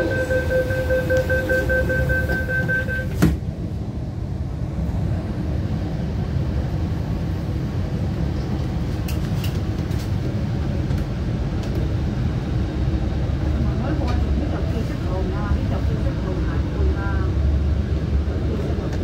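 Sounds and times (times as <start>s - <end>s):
train doors shutting: 0.0s - 3.6s
train rumbling: 0.0s - 19.0s.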